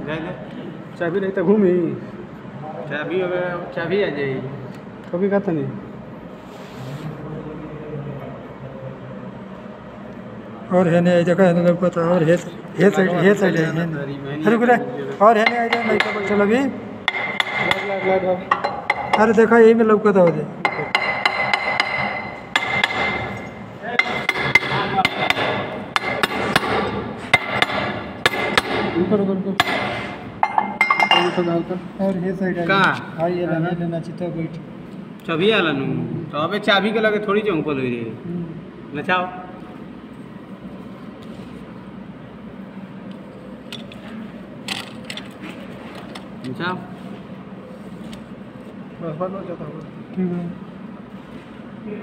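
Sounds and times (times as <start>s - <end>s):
hammer striking metal: 15.4s - 19.3s, 20.2s - 31.5s.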